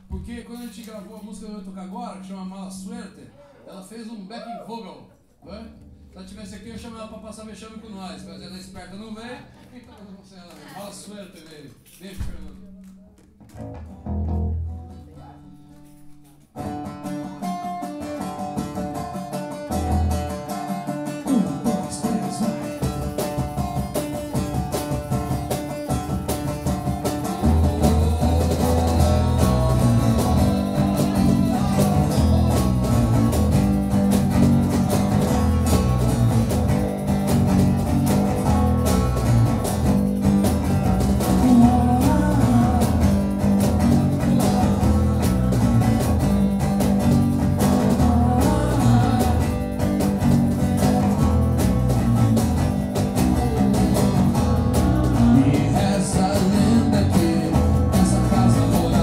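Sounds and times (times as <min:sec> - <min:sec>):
cajon beat: 0:08.3 - 0:59.0
strummed acoustic guitar: 0:13.6 - 0:59.0
man singing: 0:21.2 - 0:23.0, 0:27.2 - 0:34.0, 0:40.9 - 0:46.6, 0:47.5 - 0:52.2, 0:53.2 - 0:59.0.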